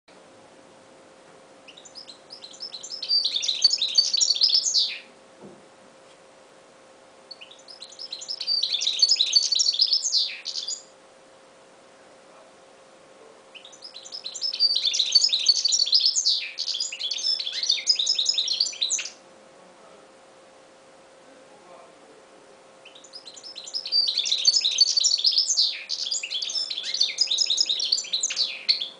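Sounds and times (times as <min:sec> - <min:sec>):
finch twittering song: 0:01.6 - 0:05.1, 0:07.3 - 0:10.9, 0:13.5 - 0:19.2, 0:22.8 - 0:28.9.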